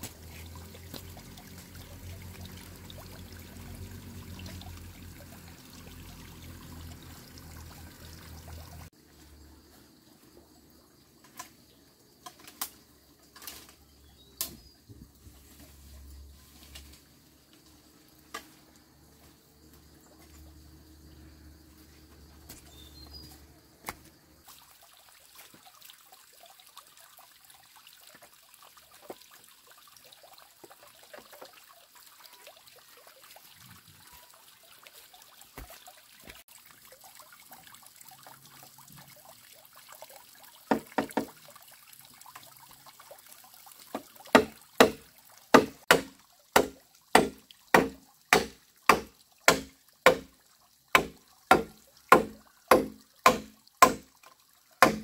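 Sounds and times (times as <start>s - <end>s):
machete chopping bamboo: 44.3s - 50.3s, 51.0s - 54.1s, 54.8s - 55.0s.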